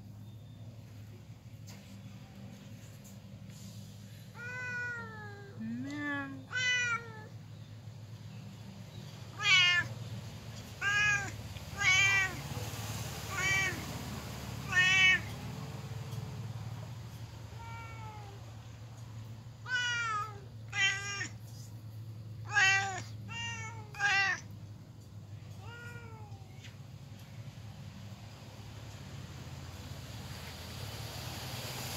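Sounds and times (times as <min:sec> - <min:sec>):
cats meowing: 0:04.3 - 0:07.4, 0:09.3 - 0:10.0, 0:10.6 - 0:12.5, 0:13.3 - 0:13.9, 0:14.6 - 0:15.4, 0:17.5 - 0:18.6, 0:19.6 - 0:21.7, 0:22.4 - 0:24.5, 0:25.5 - 0:26.8.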